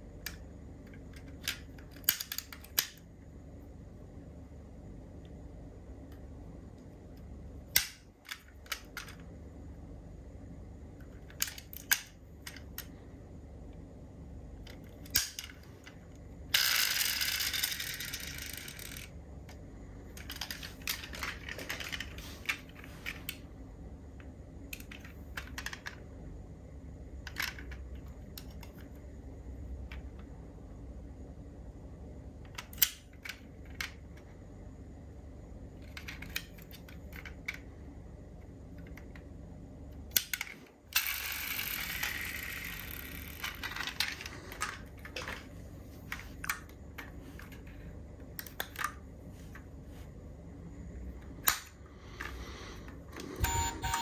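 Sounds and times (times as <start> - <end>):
small clicks of toy cars: 0.2 - 3.0, 14.6 - 23.4, 24.7 - 26.0, 35.8 - 37.6, 40.1 - 45.4.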